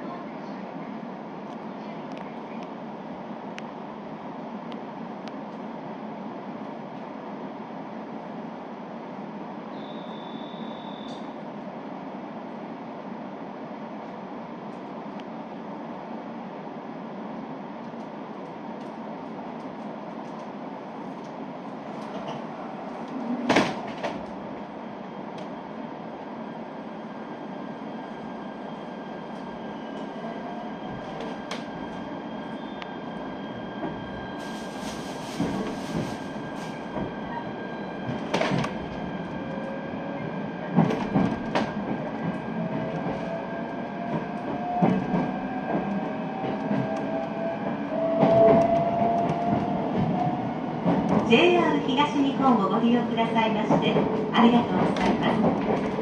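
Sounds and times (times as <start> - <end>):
train running noise: 17.6 - 56.0.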